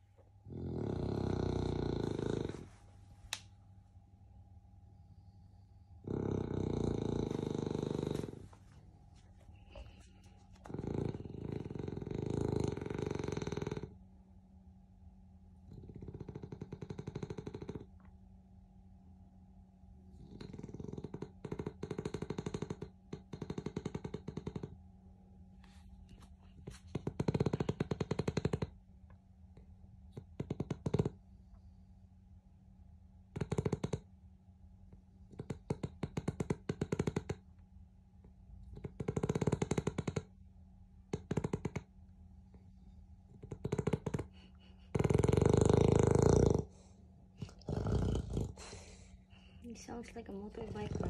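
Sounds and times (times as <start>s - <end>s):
dog snoring loudly: 0.4s - 2.8s, 6.0s - 8.5s, 10.7s - 14.0s, 15.7s - 17.9s, 20.1s - 24.8s, 26.9s - 28.8s, 30.2s - 31.2s, 33.3s - 34.1s, 35.3s - 37.4s, 38.6s - 40.3s, 41.1s - 41.9s, 43.3s - 49.5s, 50.5s - 51.0s.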